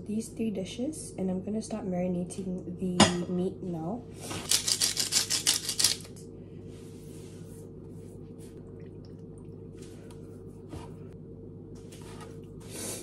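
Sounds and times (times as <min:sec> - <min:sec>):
steady low hum: 0:00.0 - 0:13.0
seasoning shaker shakes: 0:04.4 - 0:06.2.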